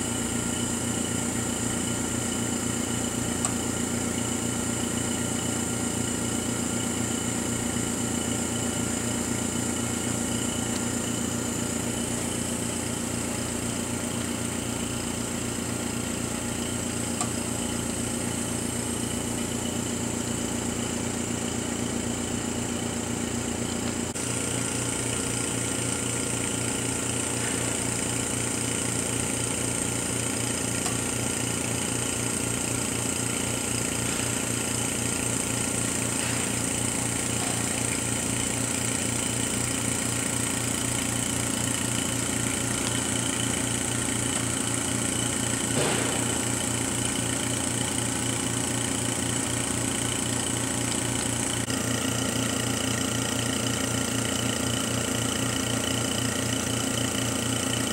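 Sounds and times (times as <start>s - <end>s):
electrical and fan hum: 42.0s - 46.9s.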